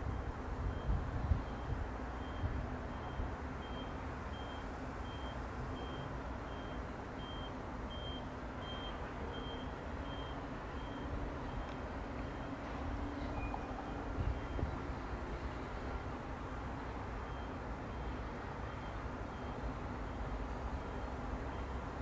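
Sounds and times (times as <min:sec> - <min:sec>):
distant train rumble: 0:08.4 - 0:22.0.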